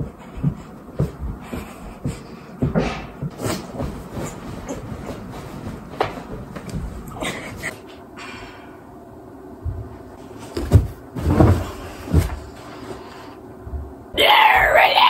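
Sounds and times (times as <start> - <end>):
thumps into armchair: 10.6 - 12.4.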